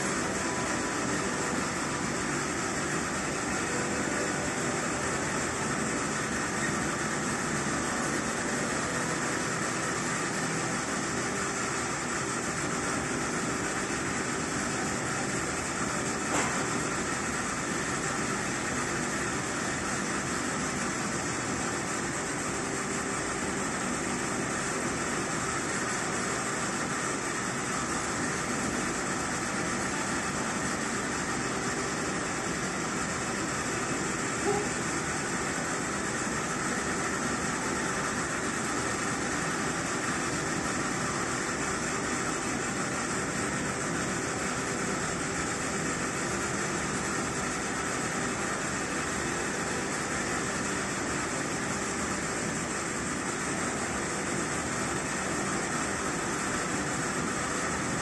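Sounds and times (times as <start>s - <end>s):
ventilation hum: 0.0s - 58.0s.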